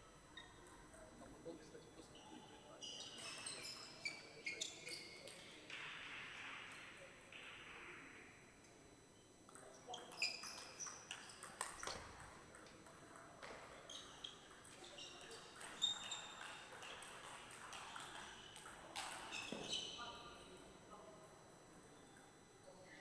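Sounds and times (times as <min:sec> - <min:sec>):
table tennis ball pinging: 0:09.6 - 0:19.9.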